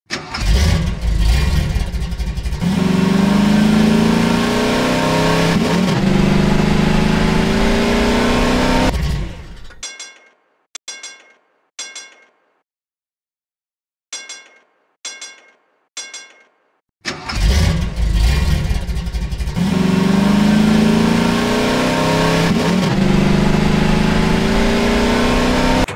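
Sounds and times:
car engine revving and accelerating: 0.3 - 9.7, 17.3 - 25.9
short metallic dings: 9.8 - 12.5, 14.1 - 16.8.

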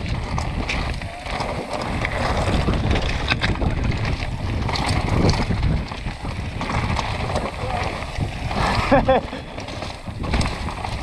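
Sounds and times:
bike rattling: 0.0 - 11.0
tyres crunching over stones: 0.0 - 11.0
wind rumble on microphone: 0.0 - 11.0.

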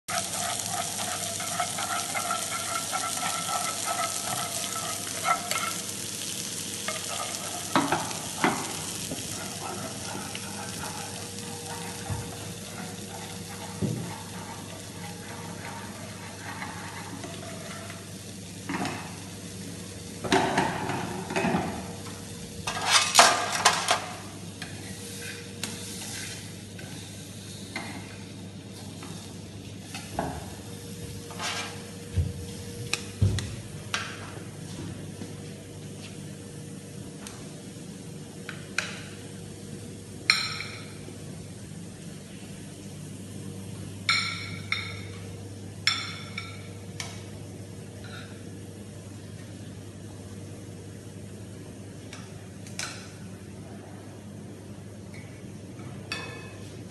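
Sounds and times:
metal utensils clanking on pans: 0.1 - 19.2, 20.2 - 21.8, 22.6 - 25.4
food sizzling in frying pans: 0.1 - 34.8, 36.0 - 53.2.

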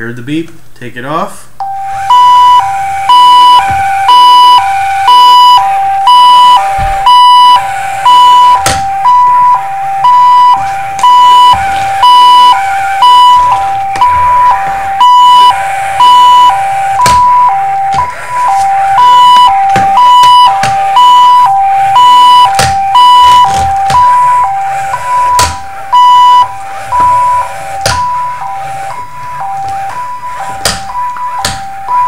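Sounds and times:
electronic two-tone siren: 1.6 - 32.0
sharp knocks: 8.6 - 9.0, 22.4 - 24.2, 25.3 - 25.7, 30.6 - 31.7.

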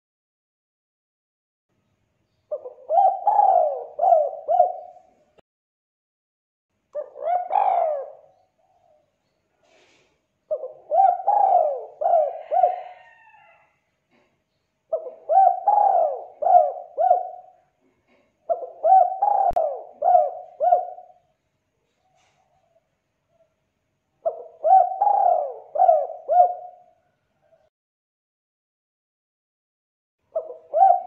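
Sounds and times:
dove cooing: 2.5 - 5.3, 7.0 - 9.0, 9.7 - 13.7, 14.9 - 21.3, 24.2 - 27.7, 30.3 - 31.0.

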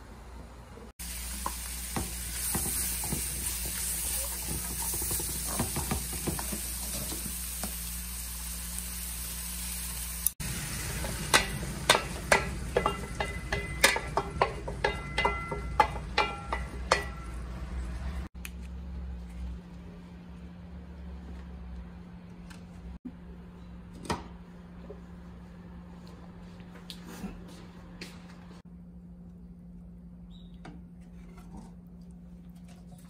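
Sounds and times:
vegetables sizzling in wok: 1.0 - 18.0
metal ladle clinking on bowl and wok: 11.3 - 17.5.

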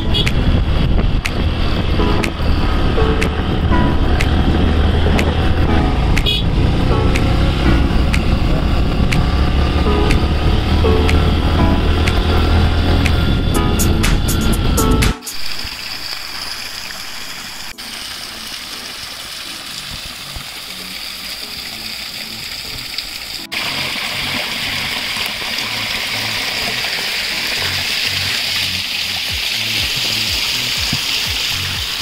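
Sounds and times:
background music: 0.0 - 15.4
running water rushing: 15.3 - 32.0.

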